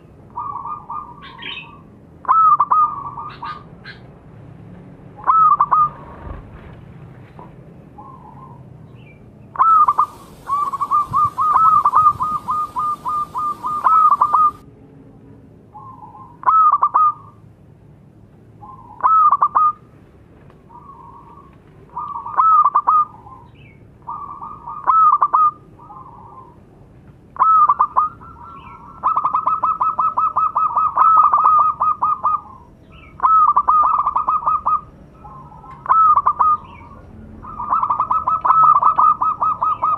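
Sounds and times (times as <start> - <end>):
dove cooing: 0.4 - 4.0, 5.2 - 6.4, 9.6 - 14.6, 15.8 - 17.4, 18.6 - 19.8, 20.7 - 23.5, 24.1 - 26.6, 27.4 - 39.9.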